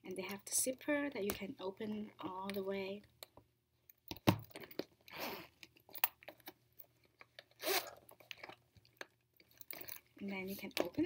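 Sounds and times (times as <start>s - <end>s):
case handling clicks and knock: 4.0s - 4.9s
zipper being pulled open: 7.5s - 8.2s.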